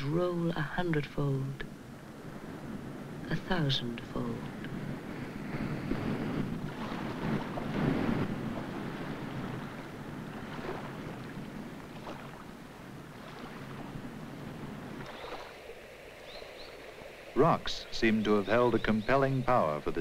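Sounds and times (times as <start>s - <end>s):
waves breaking on rocks: 4.2s - 15.8s.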